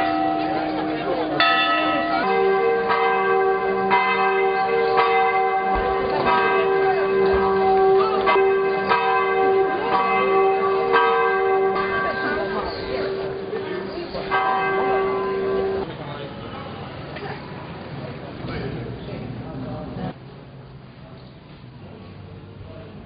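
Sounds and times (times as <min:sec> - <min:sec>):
deep bell ringing: 0:00.0 - 0:15.8
church bells ringing: 0:00.0 - 0:15.9.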